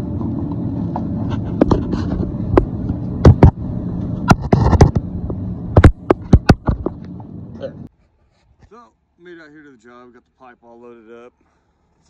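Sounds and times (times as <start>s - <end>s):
sharp knocks and clanks: 5.7s - 7.0s.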